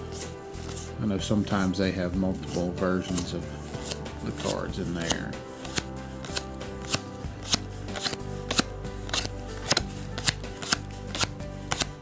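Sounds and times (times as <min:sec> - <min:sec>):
background music: 0:00.0 - 0:12.0
playing cards snapping: 0:02.5 - 0:12.0.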